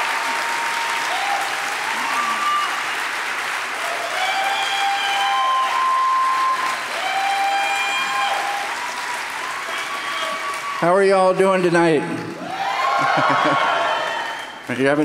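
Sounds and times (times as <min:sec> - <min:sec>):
audience applauding: 0:00.0 - 0:15.0
crowd calling out: 0:03.8 - 0:14.6.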